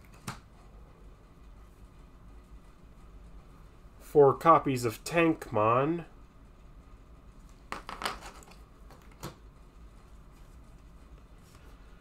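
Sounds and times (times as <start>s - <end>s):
cards tapping and rustling: 7.7s - 9.4s.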